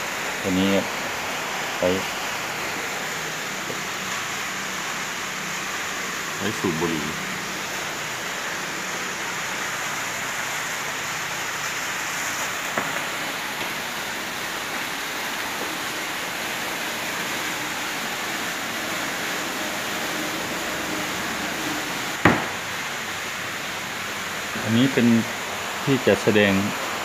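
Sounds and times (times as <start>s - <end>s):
room noise hiss: 0.0s - 27.0s.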